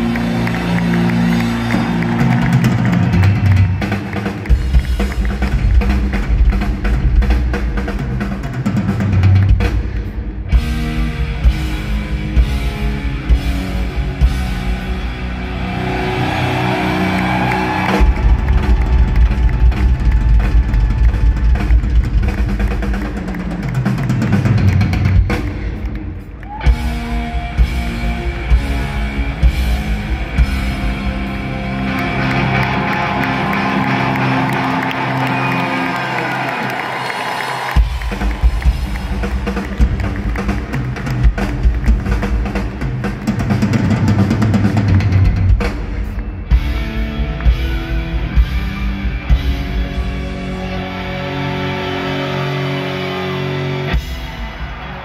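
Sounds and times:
rapid bass drum beats: 1.2s - 14.9s, 17.7s - 31.6s, 37.8s - 49.8s.

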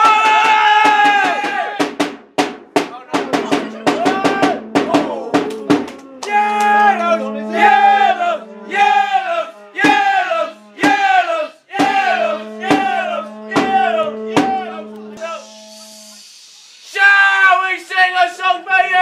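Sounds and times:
fast drum beat: 0.0s - 6.0s, 11.8s - 14.7s
held low note: 3.5s - 9.8s, 12.0s - 16.2s
falling melodic phrase: 3.6s - 8.8s.

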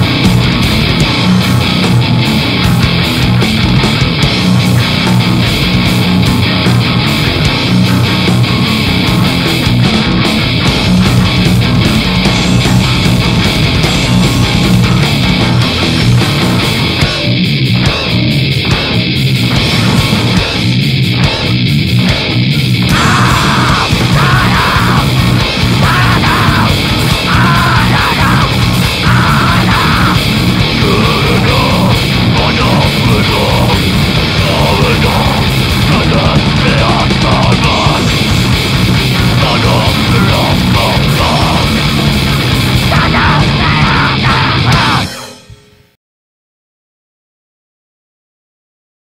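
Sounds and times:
grindcore band playing: 0.0s - 45.9s
person yelling vocals: 22.9s - 38.2s, 39.2s - 45.1s.

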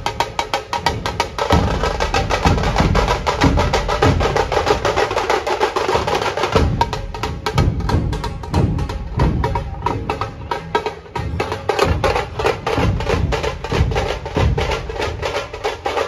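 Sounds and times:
rapid sharp drum strokes: 0.0s - 16.0s
deep barrel drum thuds: 0.7s - 5.3s, 5.9s - 10.1s, 11.8s - 15.4s.

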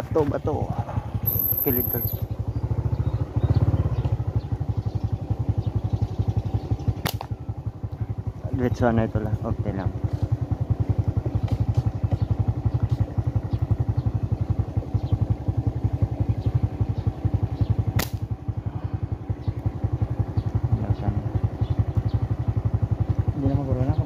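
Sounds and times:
motorcycle engine running: 0.0s - 24.0s
sharp click: 7.0s - 7.3s, 18.0s - 18.3s.

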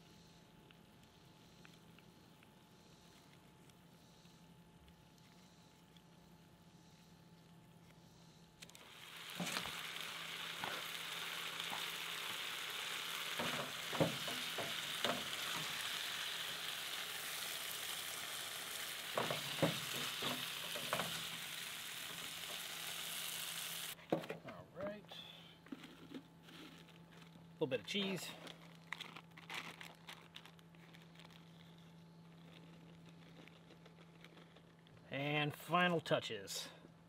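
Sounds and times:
meat and onions sizzling in skillet: 8.8s - 24.0s.

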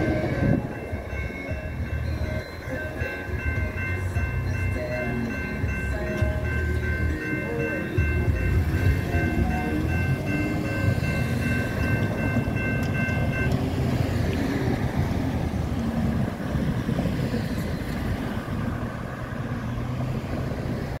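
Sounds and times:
electronic crossing bell ringing: 0.0s - 15.3s
cars rumbling over crossing: 0.0s - 21.0s.

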